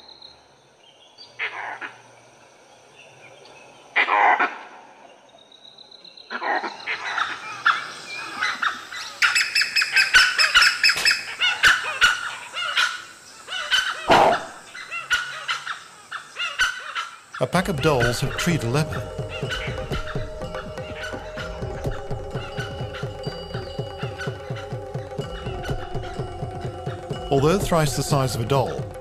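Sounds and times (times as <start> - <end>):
wild dogs yelping and whistling: 6.3 - 27.4
monkey harsh alarm barks: 8.4 - 17.2, 18.0 - 23.2.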